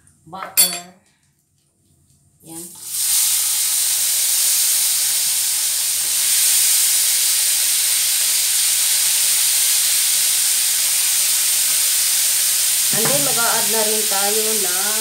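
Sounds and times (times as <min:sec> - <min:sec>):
shrimp sizzling in a pan: 0:02.7 - 0:15.0.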